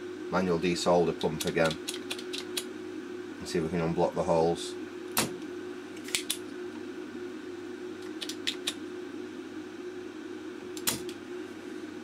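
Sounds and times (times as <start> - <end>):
steady low hum: 0.0 - 12.0
desoldering pump snap: 10.8 - 11.2.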